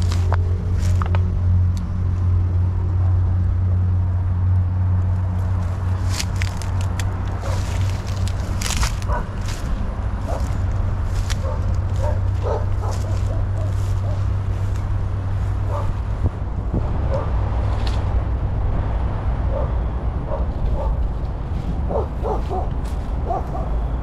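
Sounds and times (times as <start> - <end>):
footsteps through dry grass: 0.0 - 2.4, 5.0 - 18.2, 20.4 - 24.0
steady low rumble: 0.0 - 24.0
dog barking and yipping: 9.0 - 9.4, 11.3 - 14.3, 15.6 - 16.0, 17.1 - 17.4, 19.5 - 21.0, 21.9 - 23.9.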